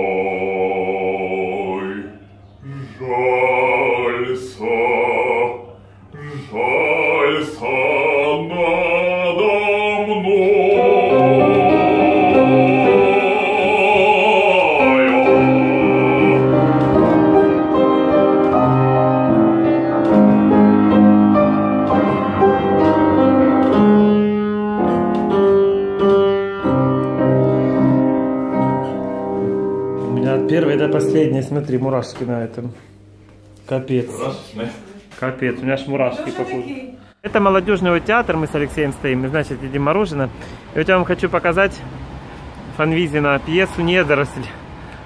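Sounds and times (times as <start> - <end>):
operatic singing: 0.0 - 24.2
piano accompaniment: 9.3 - 34.7.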